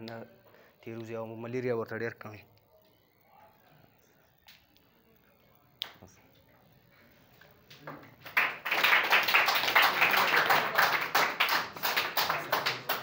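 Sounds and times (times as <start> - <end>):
people clapping: 5.8 - 6.1, 7.7 - 13.0.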